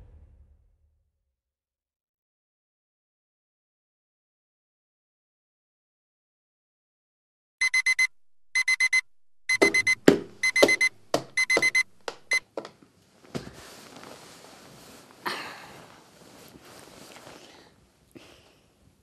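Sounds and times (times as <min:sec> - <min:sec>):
alarm clock beeping: 0:07.6 - 0:12.4
hand slapping alarm clock: 0:07.6 - 0:12.4
bedclothes rustling: 0:12.9 - 0:19.0.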